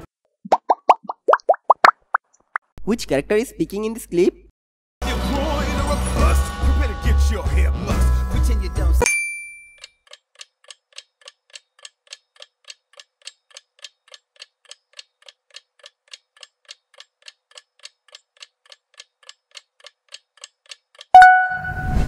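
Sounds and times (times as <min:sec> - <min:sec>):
clock ticking: 0:10.1 - 0:21.6.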